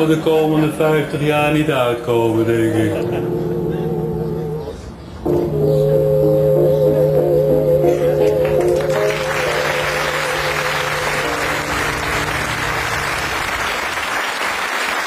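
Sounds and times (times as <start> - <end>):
music with wavering notes: 2.9 - 13.4
audience applauding: 8.2 - 15.0.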